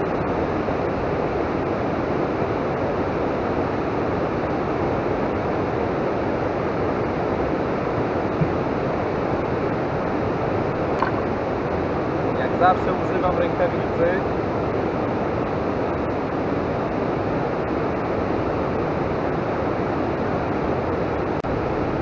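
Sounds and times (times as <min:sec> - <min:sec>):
wind: 0:00.0 - 0:22.0
rushing water: 0:00.2 - 0:13.6.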